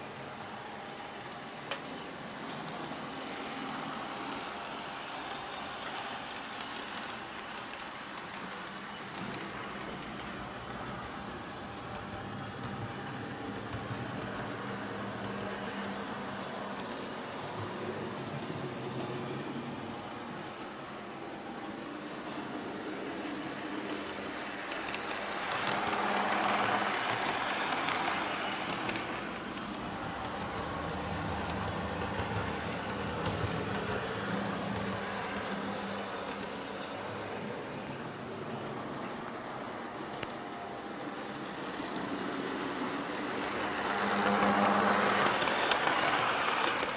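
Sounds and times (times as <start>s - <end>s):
model train motor hum: 0.0s - 46.9s
wheels clicking on rails: 0.0s - 46.9s
model train motor whir: 21.5s - 38.0s, 40.0s - 46.9s.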